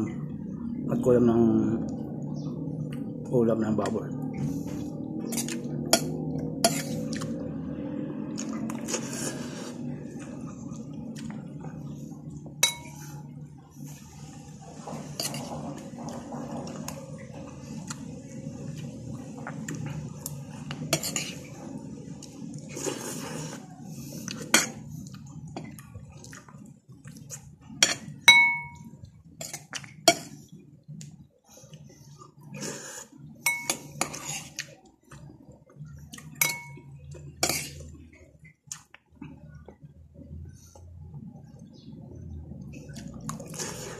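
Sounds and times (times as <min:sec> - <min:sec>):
steady low hum: 0:00.0 - 0:43.9
metal spoon clinking on plate: 0:12.6 - 0:13.0, 0:27.8 - 0:28.9, 0:33.5 - 0:34.0, 0:36.4 - 0:37.7.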